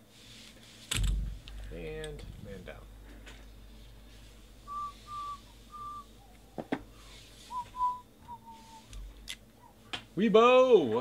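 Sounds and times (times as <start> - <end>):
person whistling a tune: 4.7 - 6.6, 7.5 - 9.0.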